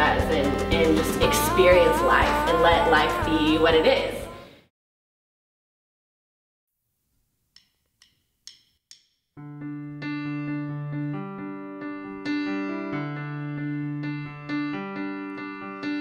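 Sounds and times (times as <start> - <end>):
drumstick clicks: 7.5 - 9.4
keyboard piano chords: 9.4 - 16.0.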